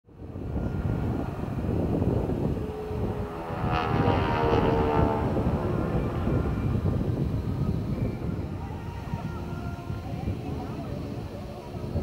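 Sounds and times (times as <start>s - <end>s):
propeller plane engine running: 0.1s - 12.0s.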